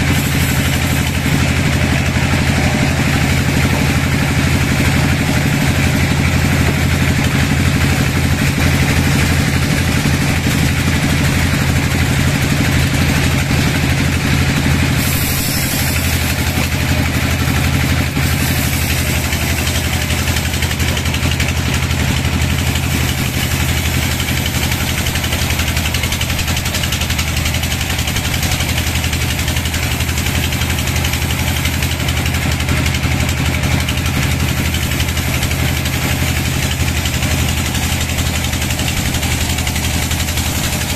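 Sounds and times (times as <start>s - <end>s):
saw blade hissing through wood: 0.0s - 40.9s
sawmill machine hum: 0.0s - 40.9s.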